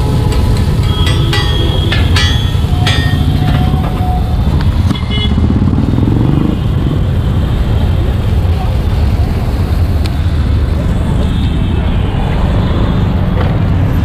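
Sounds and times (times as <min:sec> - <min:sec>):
sharp ringing clinks: 0:00.7 - 0:03.8.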